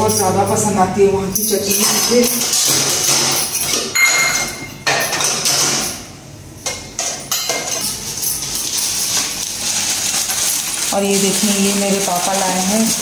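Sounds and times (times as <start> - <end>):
steel dishes clattering: 1.5 - 6.0, 6.6 - 13.0
plastic bags rustling: 7.7 - 13.0.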